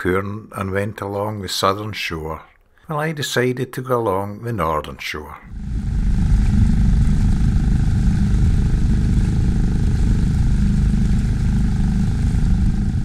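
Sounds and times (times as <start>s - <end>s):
outboard motor running: 5.5s - 13.0s.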